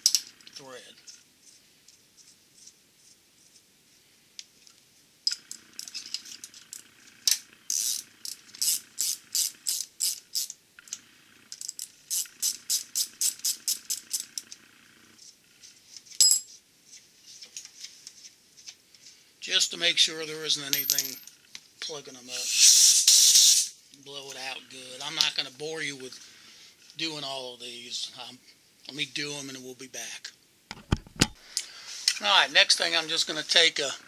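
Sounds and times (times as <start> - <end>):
ratchet wrench clicking: 6.7 - 14.6.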